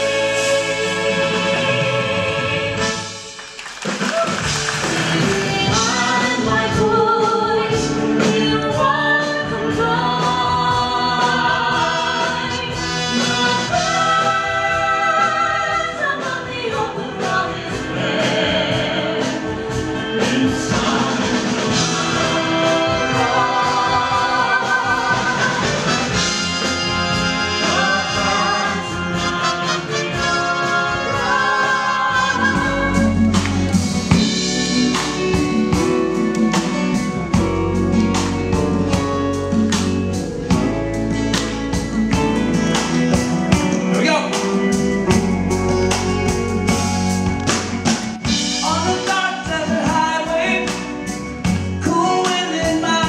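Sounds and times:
people singing into microphones: 0.0s - 3.2s, 4.9s - 34.5s
musical accompaniment: 0.0s - 53.0s.

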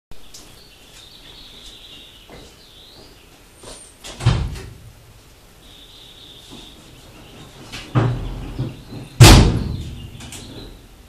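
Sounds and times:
deep thump of door shutting: 4.1s - 4.8s, 9.2s - 10.2s.

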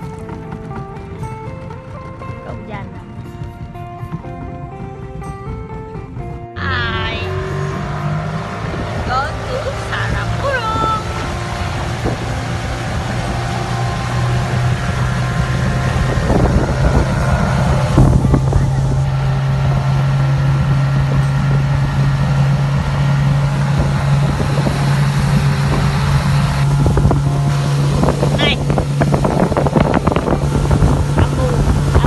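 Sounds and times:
outboard motor running: 0.0s - 32.0s
wind buffeting microphone: 0.0s - 32.0s
water rushing past: 6.6s - 32.0s.

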